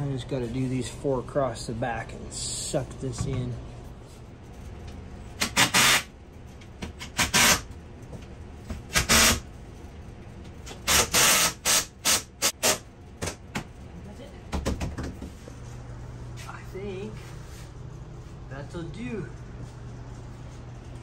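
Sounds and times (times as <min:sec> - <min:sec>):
cordless drill driving screws: 0:05.4 - 0:06.0, 0:10.9 - 0:12.2.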